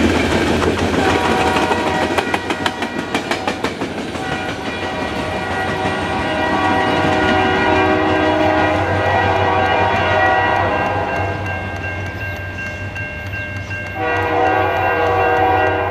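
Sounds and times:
crossing warning bell ringing: 0:01.0 - 0:15.9.

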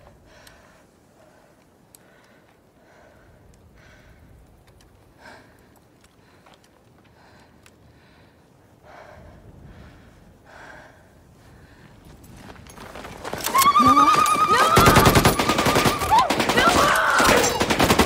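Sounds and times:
woman screaming: 0:13.4 - 0:17.7.

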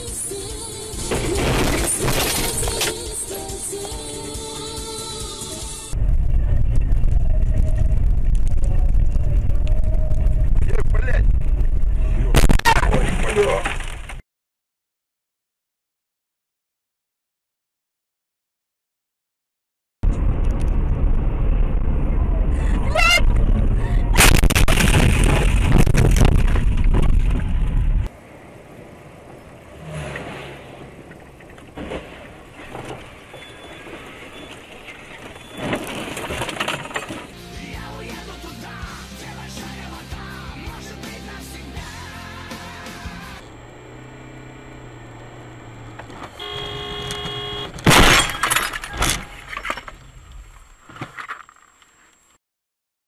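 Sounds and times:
road rumble: 0:00.0 - 0:14.2, 0:20.0 - 0:52.4
car crash crunching and scraping: 0:00.9 - 0:03.3, 0:12.3 - 0:14.2, 0:24.2 - 0:28.1, 0:29.7 - 0:37.4, 0:43.5 - 0:51.8
debris clattering: 0:31.5 - 0:37.4, 0:47.7 - 0:50.2
car collision impact: 0:45.9 - 0:50.0
vehicle horn: 0:46.1 - 0:47.8
glass breaking: 0:47.8 - 0:49.9.

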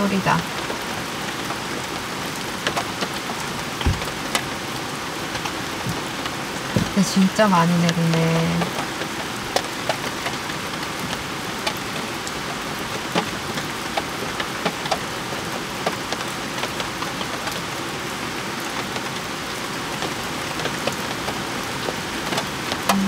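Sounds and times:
heavy rain on a car: 0:00.0 - 0:23.0
sharp raindrops striking close: 0:00.0 - 0:23.0.

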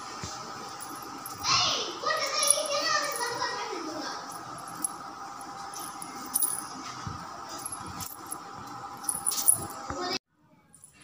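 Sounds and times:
steady hum: 0:00.0 - 0:10.2
anklet bells jingling: 0:02.2 - 0:03.4, 0:05.7 - 0:06.7, 0:09.0 - 0:09.8.

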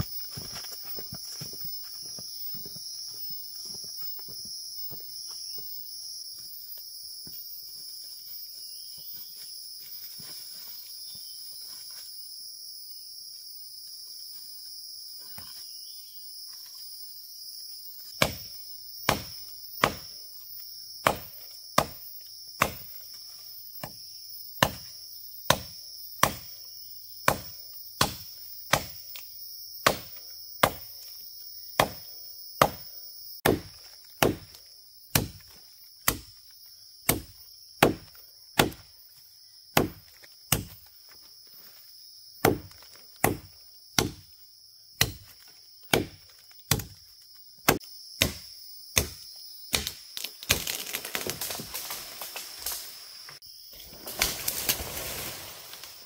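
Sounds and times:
forest insects chorus: 0:00.0 - 0:56.0
chopping blows: 0:31.8 - 0:35.4.

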